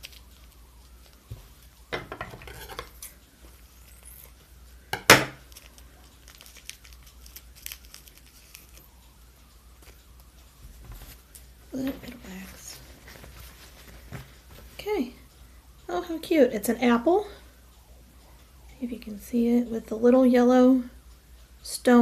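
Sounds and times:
plastic wrap crinkling: 0.0 - 3.1, 5.4 - 8.9, 10.7 - 14.9
small clicks and rustles: 5.5 - 9.1.

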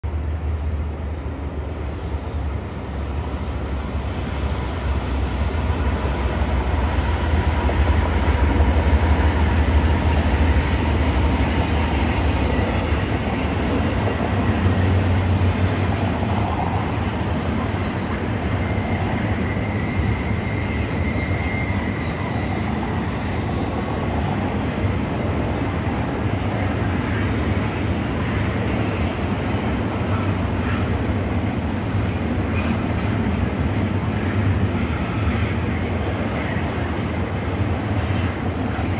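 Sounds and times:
train wheels rumbling on rails: 0.0 - 38.9
high wheel squeal: 9.2 - 15.5, 18.6 - 23.6.

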